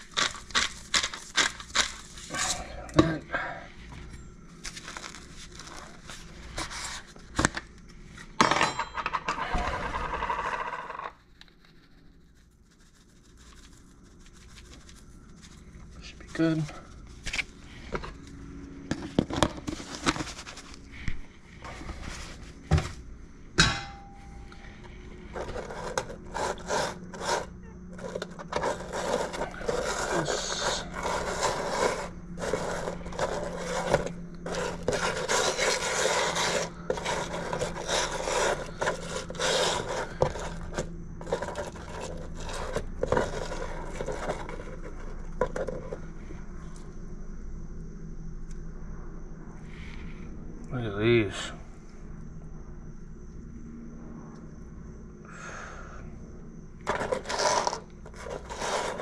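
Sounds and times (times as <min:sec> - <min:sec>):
hands rubbing seasoning into crabs: 0:00.0 - 0:02.3, 0:11.2 - 0:17.1, 0:25.4 - 0:45.1.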